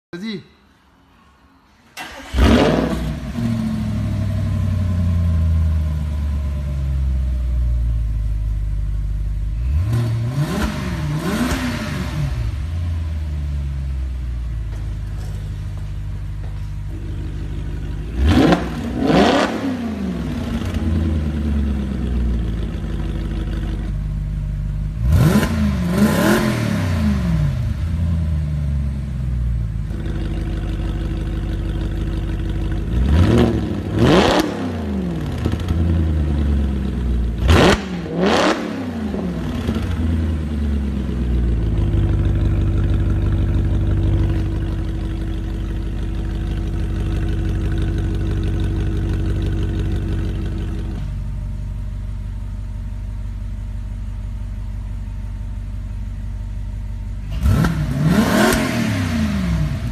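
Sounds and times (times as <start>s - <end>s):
car engine revving: 2.0s - 7.0s, 9.3s - 13.7s, 16.2s - 24.0s, 24.8s - 29.1s, 29.8s - 51.5s, 57.1s - 59.9s
car engine idling: 3.0s - 11.6s, 12.4s - 38.2s, 38.9s - 59.9s.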